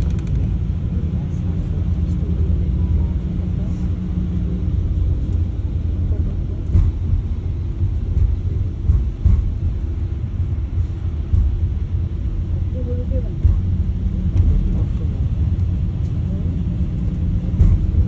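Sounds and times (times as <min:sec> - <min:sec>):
road vehicle rumbling: 0:00.0 - 0:18.0
vehicle bumps and jolts: 0:04.7 - 0:18.0.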